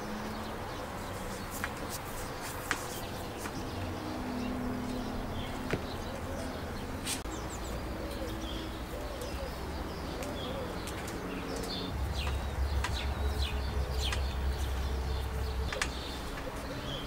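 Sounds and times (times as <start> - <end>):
small birds chirping: 0.0 - 17.0
dove cooing: 3.9 - 17.0.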